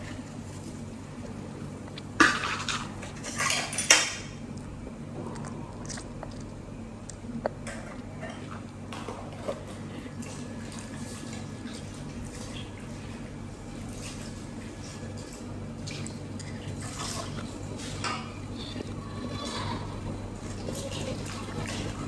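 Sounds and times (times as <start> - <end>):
hands washing fish in water: 9.5 - 18.0.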